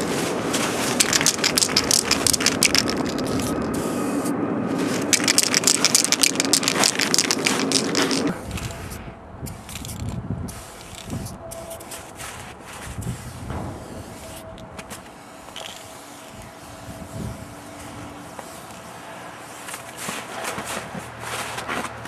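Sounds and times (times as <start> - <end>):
spray can rattling: 0.8 - 4.0, 4.8 - 11.9, 14.0 - 16.1
spray hissing: 13.1 - 19.9.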